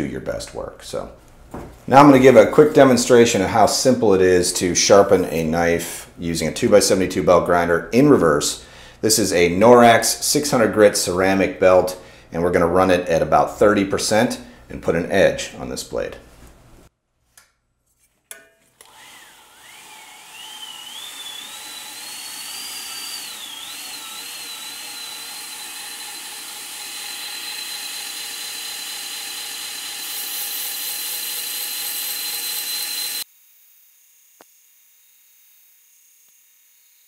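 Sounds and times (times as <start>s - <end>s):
belt grinder motor whine: 18.8s - 37.0s.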